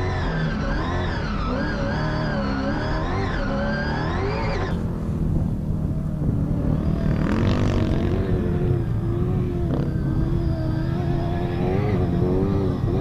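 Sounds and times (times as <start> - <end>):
rally car engine revving: 0.0 - 13.0.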